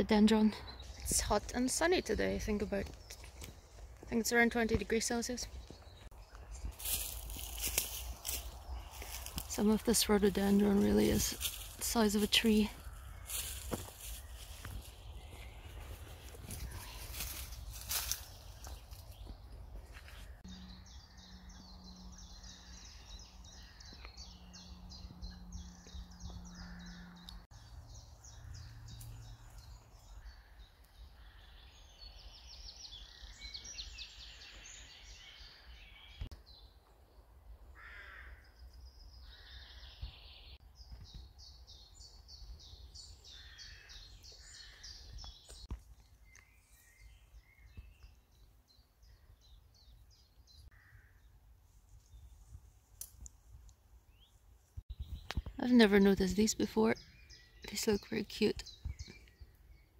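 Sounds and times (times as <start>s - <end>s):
songbirds trilling: 0.0s - 51.4s, 54.0s - 59.9s
lower bird calls: 37.7s - 48.1s.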